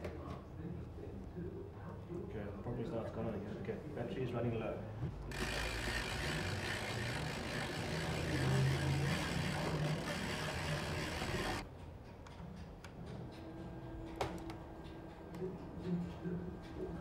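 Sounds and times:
mechanical whirring with low hum: 5.2s - 11.7s, 12.8s - 17.0s.

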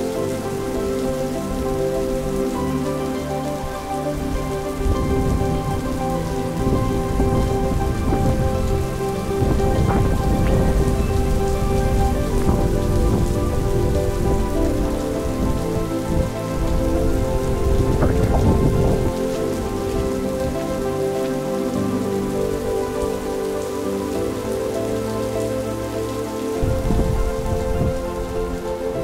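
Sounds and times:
rain falling on open ground: 0.0s - 29.0s
wind buffeting microphone: 3.7s - 23.6s, 26.5s - 29.0s.

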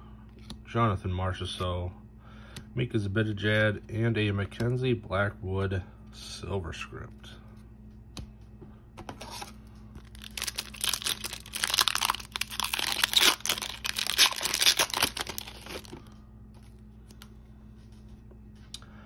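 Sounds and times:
foil wrapper crackling: 10.0s - 16.0s.

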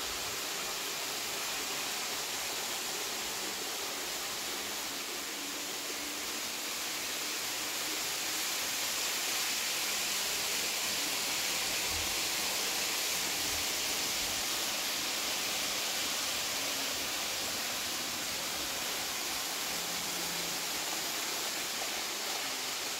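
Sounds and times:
model trains whirring: 0.0s - 22.9s.

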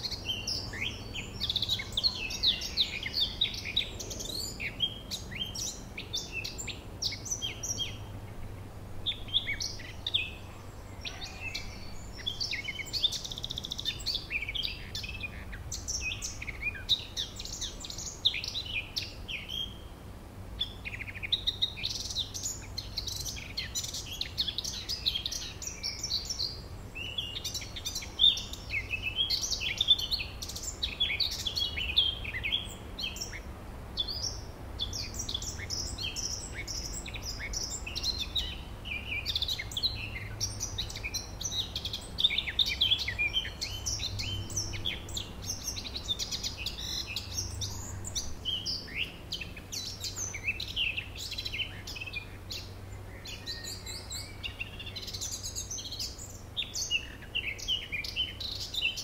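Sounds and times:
birds warbling: 0.0s - 19.7s, 34.0s - 59.0s.

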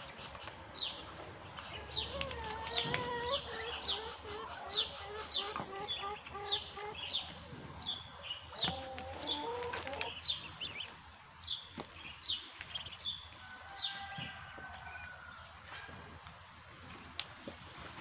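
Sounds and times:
ducklings peeping: 0.0s - 18.0s.

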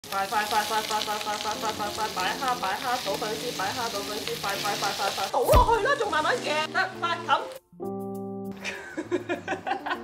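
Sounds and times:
food sizzling in a pan: 0.0s - 7.6s.

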